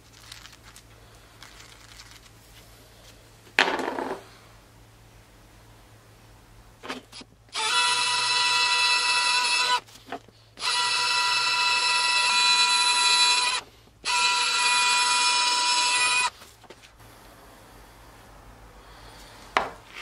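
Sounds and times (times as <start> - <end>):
electric drill boring plastic: 7.5 - 9.9, 10.6 - 16.3.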